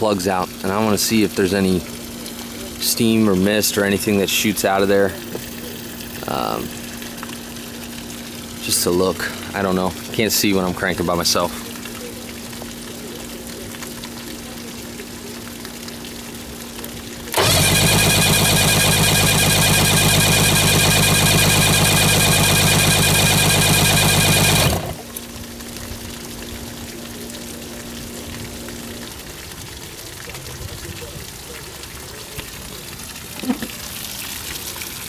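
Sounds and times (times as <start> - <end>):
outboard engine cranking whir: 17.3 - 25.2.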